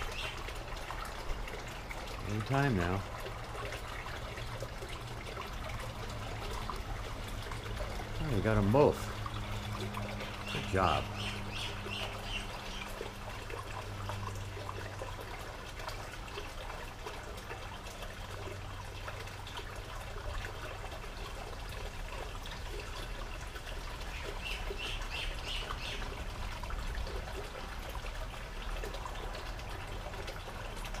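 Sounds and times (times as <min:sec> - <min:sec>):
bird chirping: 0:10.3 - 0:12.9.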